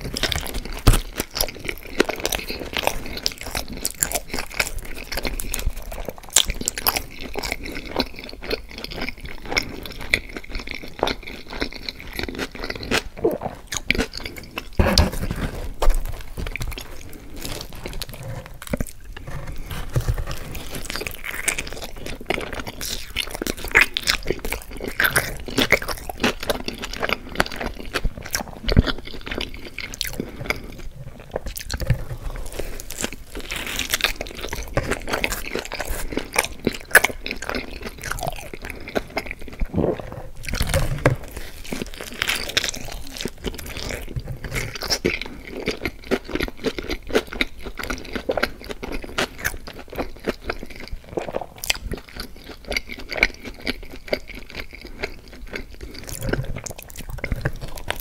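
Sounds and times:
person chewing crunchy pizza: 0:00.0 - 0:58.0
mouth sounds: 0:39.6 - 0:41.6.

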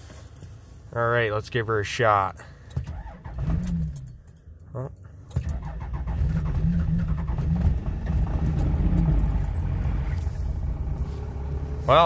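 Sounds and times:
diesel engine starting and idling: 0:02.6 - 0:04.3, 0:05.1 - 0:12.0.

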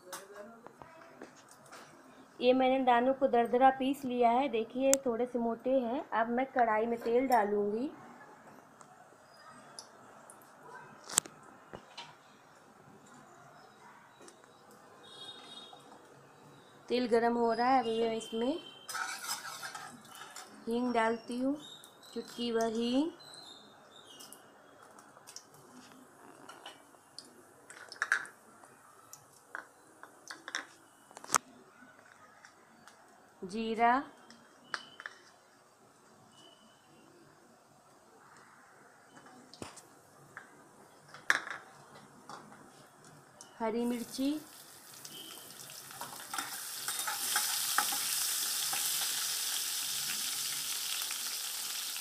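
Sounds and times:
hot oil crackling: 0:18.9 - 0:20.5, 0:43.8 - 0:52.0
steel spatula scraping and tapping: 0:18.9 - 0:20.5, 0:45.9 - 0:48.9.

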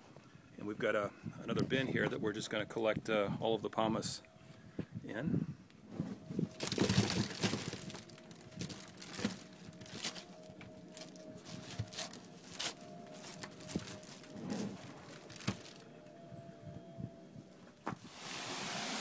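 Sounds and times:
faint steady hum: 0:02.9 - 0:18.0
grape pomace rustling and crunching: 0:06.0 - 0:15.9.

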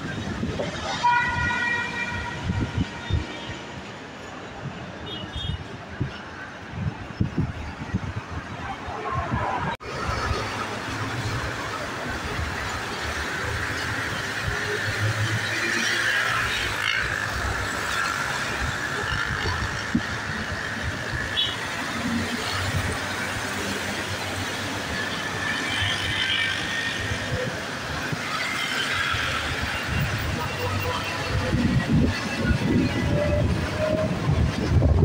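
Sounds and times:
wind buffeting microphone: 0:00.0 - 0:01.0, 0:02.0 - 0:03.3, 0:05.6 - 0:10.8, 0:29.4 - 0:35.0
steady rushing noise: 0:00.0 - 0:35.0.

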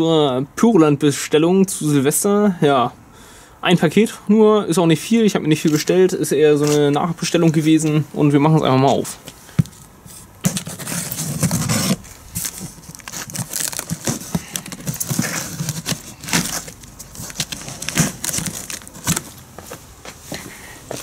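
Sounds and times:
cardboard flaps rustling: 0:09.3 - 0:19.8
packing tape tearing: 0:10.4 - 0:19.4.

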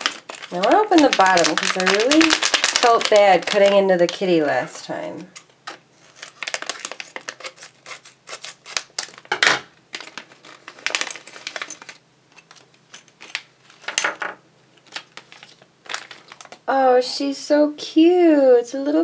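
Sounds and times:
scissors snipping wrapper: 0:00.0 - 0:04.2, 0:06.2 - 0:09.3
plastic wrapper crinkling: 0:00.0 - 0:14.0, 0:14.7 - 0:16.7.

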